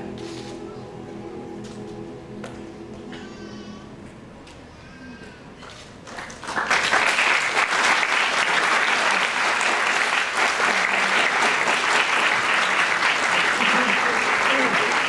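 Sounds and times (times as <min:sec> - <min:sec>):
audience applause: 0:06.0 - 0:15.0.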